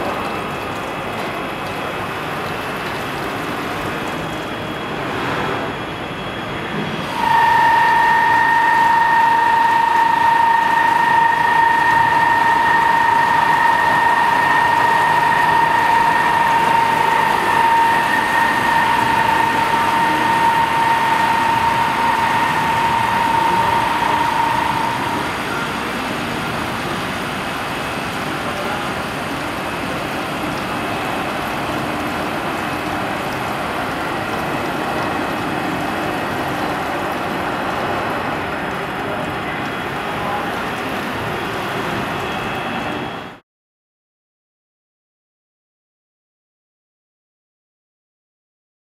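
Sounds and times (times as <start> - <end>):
high steady whine: 3.7 - 43.4
drilling machine hissing: 7.0 - 26.0.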